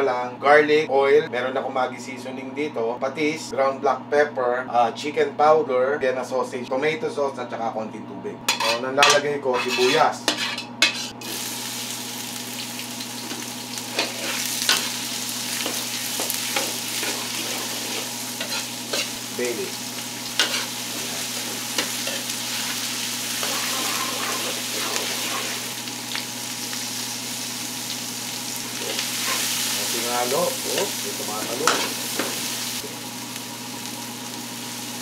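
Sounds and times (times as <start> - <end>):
ladle scraping metal wok: 8.5 - 11.2, 15.7 - 19.2, 20.4 - 22.8, 23.4 - 25.7
onions sizzling in oil: 9.8 - 35.0.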